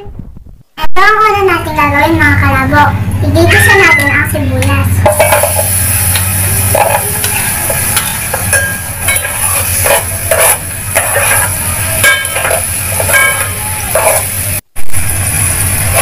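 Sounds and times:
onions sizzling in hot oil: 4.0s - 16.0s
metal spoon scraping and clinking: 5.0s - 14.4s.

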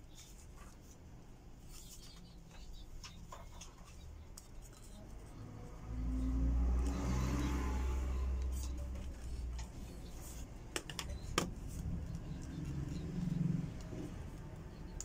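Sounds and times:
passing vehicle engine rumble: 5.0s - 10.6s, 11.5s - 14.9s.

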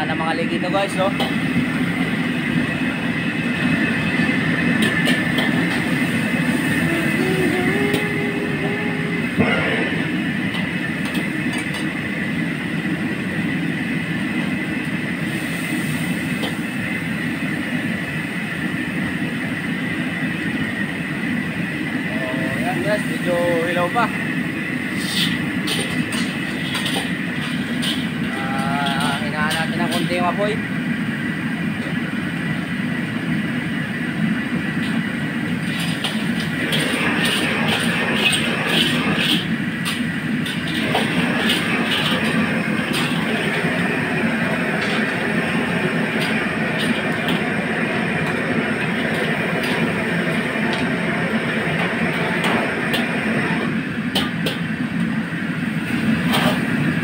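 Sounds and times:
gas burner running: 0.0s - 57.0s
oil sizzling in wok: 1.2s - 20.1s, 22.5s - 30.3s, 33.3s - 57.0s
oil bubbling: 24.7s - 30.2s, 34.2s - 53.4s.

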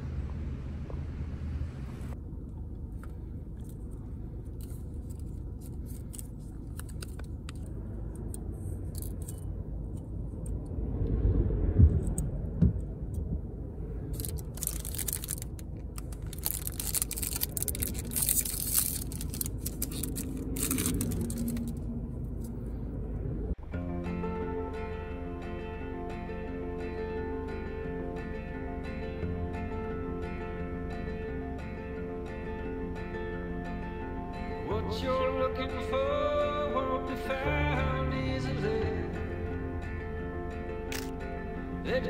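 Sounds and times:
low car cabin rumble: 0.0s - 42.0s
camera film clicks and scraping: 4.6s - 9.5s, 40.9s - 41.2s.

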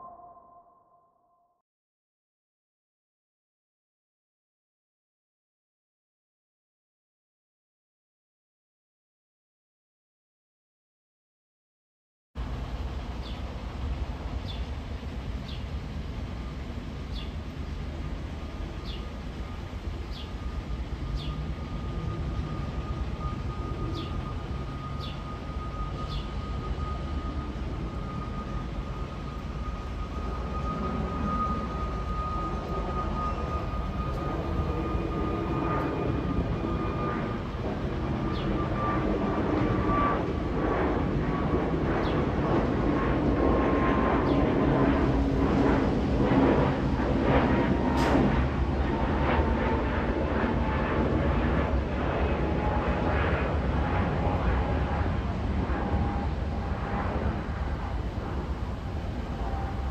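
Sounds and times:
distant jet engine rumble: 12.4s - 59.9s
faint steady whine: 12.4s - 59.9s
bird chirping: 18.8s - 19.1s, 20.1s - 20.4s, 21.2s - 21.4s, 23.9s - 24.2s, 24.9s - 25.3s, 26.0s - 26.4s.

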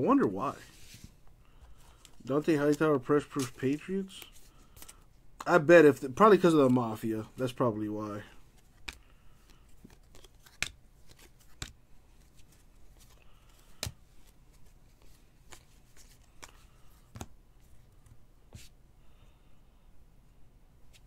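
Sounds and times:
trading cards clicking and snapping: 8.6s - 11.8s, 13.4s - 14.0s.

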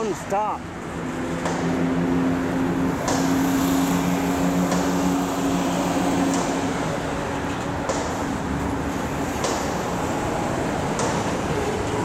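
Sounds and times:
freight train cars rumbling: 0.0s - 12.0s
sharp clicks of train wheels: 4.6s - 12.0s.

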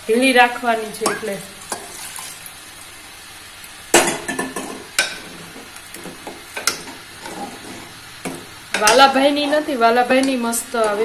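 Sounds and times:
faint sizzle: 0.0s - 11.0s
spoon clinking on metal pot: 1.0s - 1.8s.

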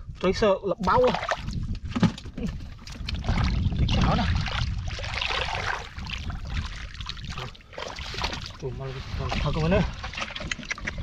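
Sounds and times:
splashing through muddy water: 0.8s - 1.7s, 2.4s - 11.0s.

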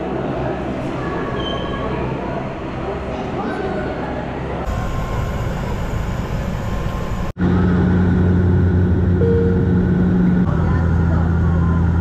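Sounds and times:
propeller drone inside cabin: 4.6s - 12.0s.

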